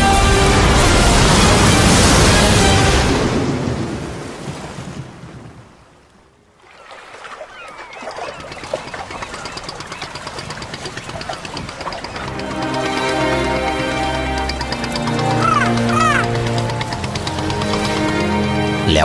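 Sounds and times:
sea water moving: 0.2 - 19.0
boat engine running: 7.4 - 19.0.

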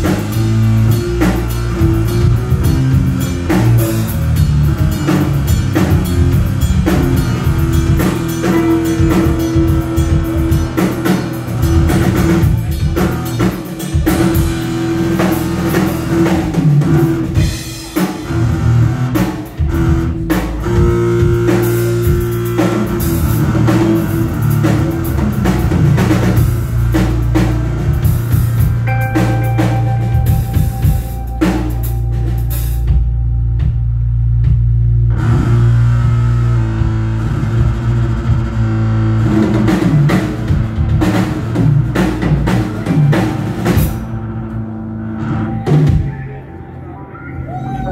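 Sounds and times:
electric guitar: 0.0 - 33.9
drum kit: 0.0 - 46.6
electric bass: 0.0 - 47.9.

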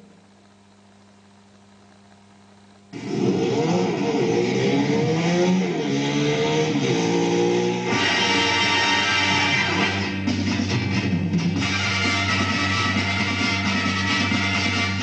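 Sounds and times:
faint low hum: 0.0 - 4.3
motorcycle engine revving: 2.9 - 10.3.

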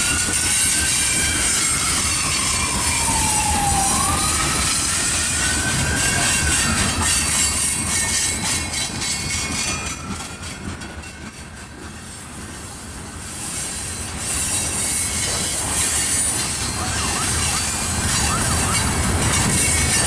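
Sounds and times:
train wheels rumbling on rails: 0.0 - 20.0
wheel squeal: 6.0 - 11.4, 13.4 - 20.0.

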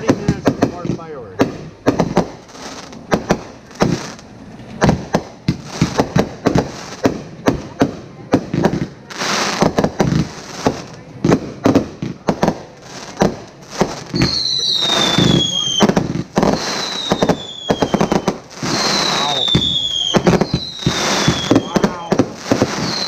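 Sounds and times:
fireworks bursting: 0.0 - 23.0
hissing rush: 12.4 - 23.0
falling whistling tones: 14.1 - 22.2, 22.8 - 23.0.

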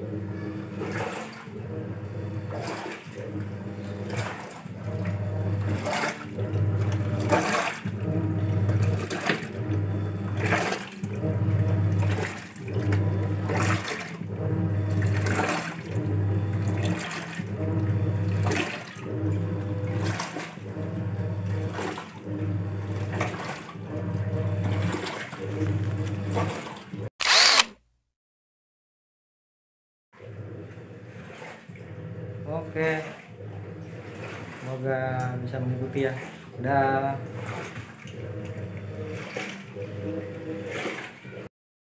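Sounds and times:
washing machine motor humming: 0.0 - 27.6, 30.3 - 41.5
clothes and water sloshing: 0.8 - 1.6, 2.5 - 14.3, 14.9 - 20.6, 21.4 - 22.3, 22.9 - 26.9, 31.1 - 32.0, 32.8 - 41.5.

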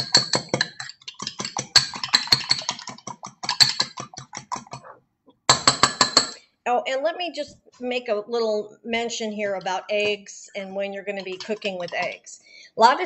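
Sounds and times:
fork beating eggs in mug: 0.0 - 6.4, 9.6 - 12.4.

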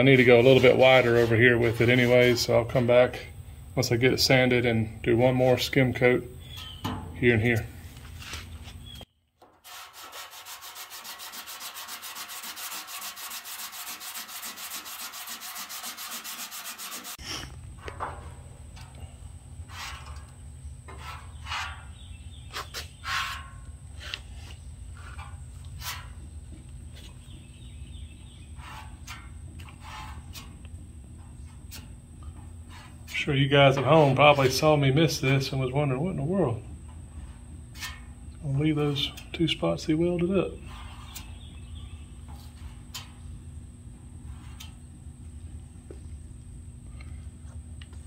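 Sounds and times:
hand sanding strokes: 0.0 - 2.6, 9.6 - 17.2, 19.7 - 20.1.

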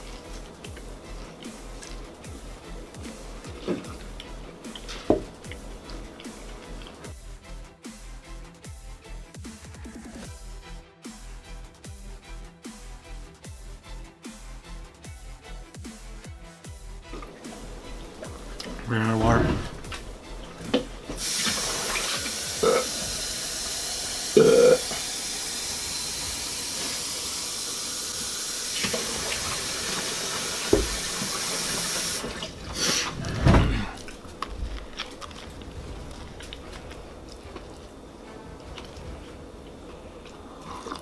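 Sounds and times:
faucet water running into cup: 20.7 - 33.0.

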